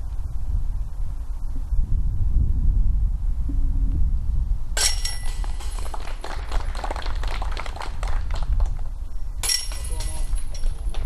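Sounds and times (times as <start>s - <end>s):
wind rumble on microphone: 0.0s - 11.0s
disc hitting metal chains: 4.8s - 6.0s, 9.4s - 10.9s.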